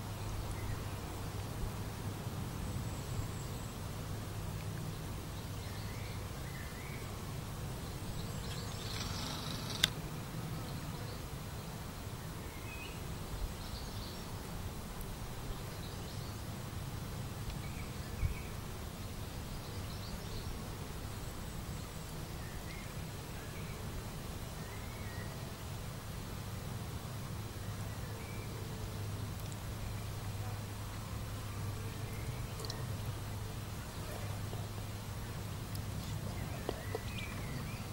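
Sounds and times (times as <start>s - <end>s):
sharp click: 8.9s - 10.0s.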